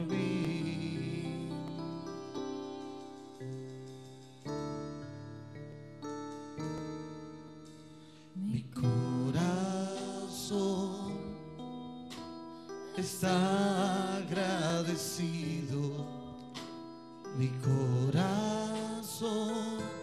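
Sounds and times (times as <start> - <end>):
man and woman singing: 0.0 - 2.1, 8.4 - 11.3, 13.0 - 16.2
electric keyboard chords: 0.0 - 20.0.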